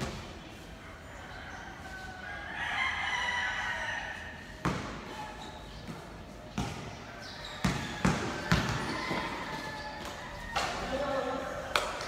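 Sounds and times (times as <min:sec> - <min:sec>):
basketball bounce on court: 0:06.6 - 0:06.9, 0:07.6 - 0:09.4.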